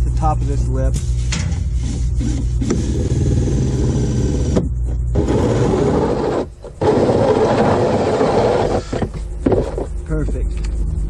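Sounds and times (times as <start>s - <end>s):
drill motor hum: 1.6s - 9.8s
hole saw grinding plastic: 1.8s - 9.9s.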